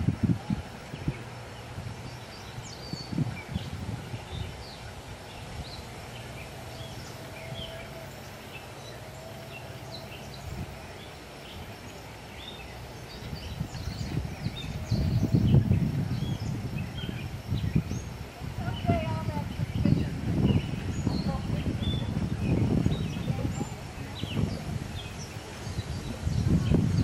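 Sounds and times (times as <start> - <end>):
bird chirps: 2.1 - 27.0.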